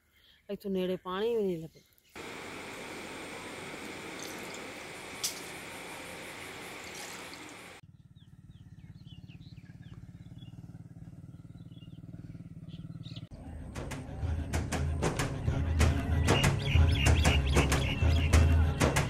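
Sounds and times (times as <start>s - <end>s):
birds chirping: 1.6s - 13.3s, 16.3s - 19.0s
engine running with low pulse: 2.2s - 16.4s.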